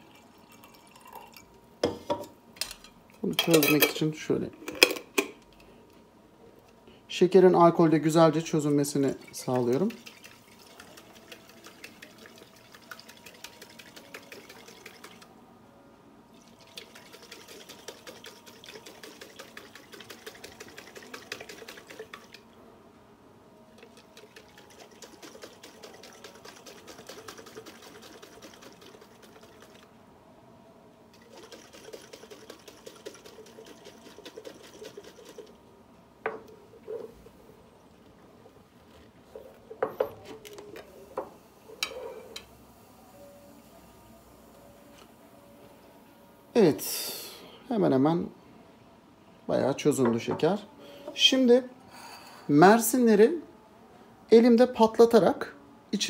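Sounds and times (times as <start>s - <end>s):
liquid sloshing in shaken glass jar: 9.0s - 15.3s, 16.4s - 22.4s, 23.8s - 29.9s, 31.2s - 35.5s.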